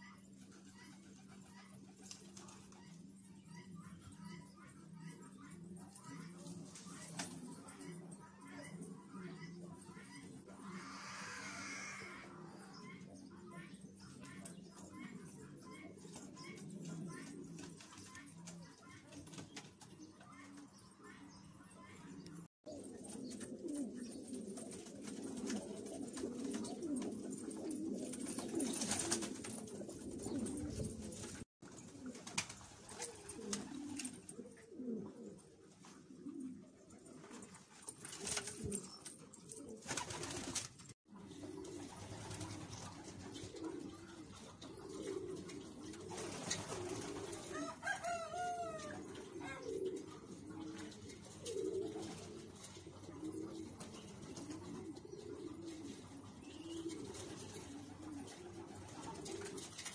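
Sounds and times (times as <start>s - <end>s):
pigeons cooing: 0.1s - 59.9s.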